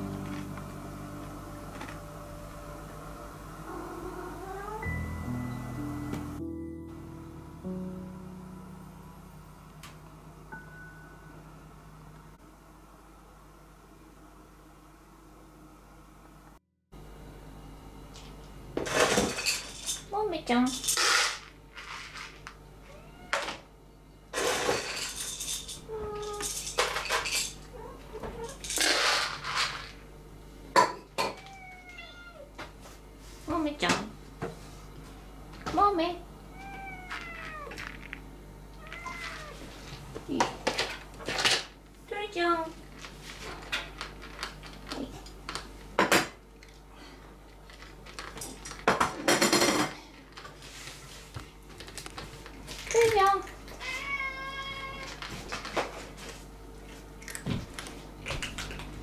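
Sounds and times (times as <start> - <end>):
cat meowing: 3.7 - 5.0, 22.9 - 23.6, 31.4 - 32.5, 36.5 - 37.8, 38.8 - 39.6, 53.8 - 55.2
dishes and bowls clattering: 24.4 - 27.6.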